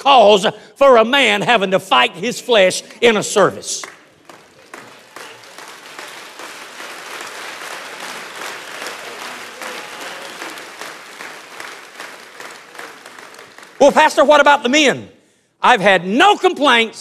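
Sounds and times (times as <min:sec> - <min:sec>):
congregation applauding: 0:03.0 - 0:14.7.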